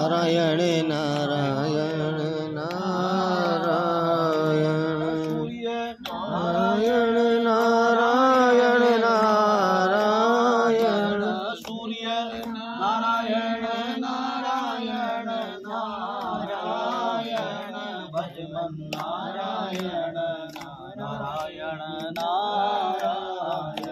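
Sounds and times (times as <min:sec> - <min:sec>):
person chanting: 0:00.0 - 0:23.9.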